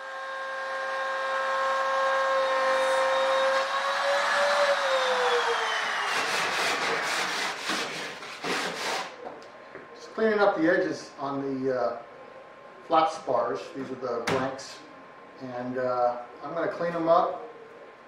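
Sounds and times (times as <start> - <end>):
router whining cutting metal: 0.0 - 9.1.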